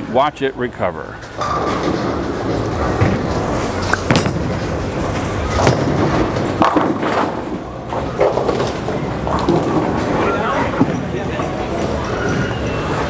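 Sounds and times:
bowling balls rolling: 1.2s - 13.0s.

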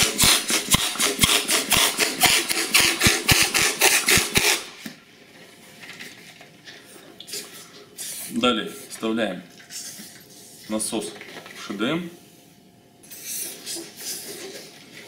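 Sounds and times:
hand pump rushing air strokes: 0.0s - 4.7s
faint handling of pump and balloon: 13.0s - 15.0s.

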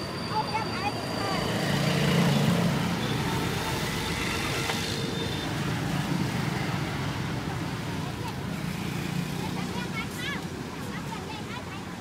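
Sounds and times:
vehicles passing with road rumble: 0.0s - 12.0s.

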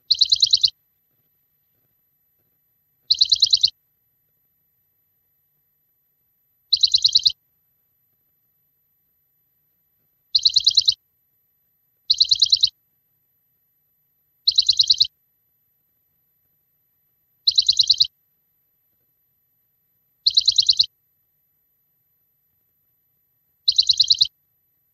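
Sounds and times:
small bird chirping: 0.0s - 24.9s.

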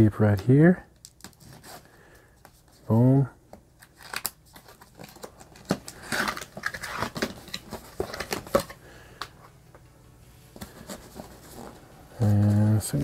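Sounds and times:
tape peeling off cardboard box: 3.8s - 8.6s
cardboard rustling and scraping: 4.0s - 8.8s, 10.6s - 13.0s.

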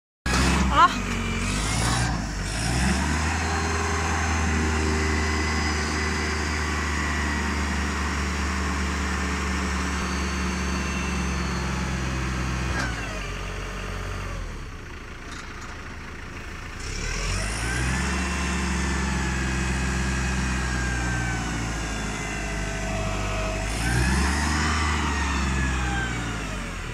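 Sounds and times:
forklift diesel engine running: 0.3s - 26.9s.

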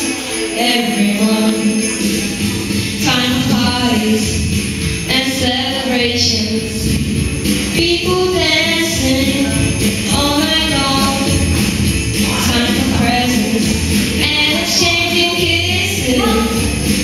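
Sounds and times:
christmas pop backing track: 0.0s - 17.0s
sleigh bells shaking: 0.0s - 17.0s
boy singing: 14.2s - 16.7s.

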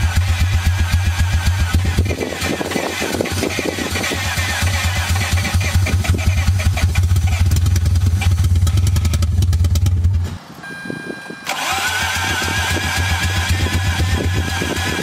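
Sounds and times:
starter motor cranking engine: 0.0s - 10.1s, 11.4s - 15.0s
steady beep: 10.6s - 11.5s.

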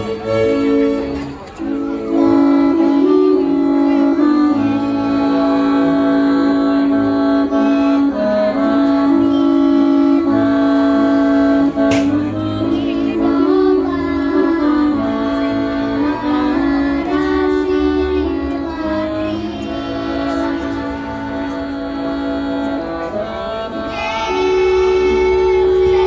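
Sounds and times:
instrumental accompaniment: 0.0s - 26.0s
girls singing folk song: 11.7s - 26.0s.

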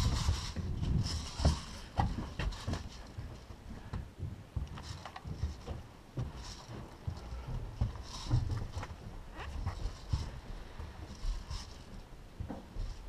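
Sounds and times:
footsteps on hollow plywood: 0.0s - 13.0s.

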